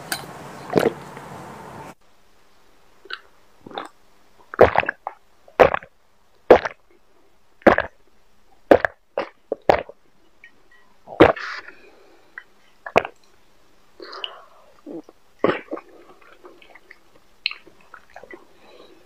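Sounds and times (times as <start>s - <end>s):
person gulping a drink: 3.1s - 5.9s, 6.5s - 6.9s, 7.6s - 8.0s, 8.7s - 10.0s, 11.1s - 11.6s, 12.8s - 13.2s, 14.0s - 18.5s.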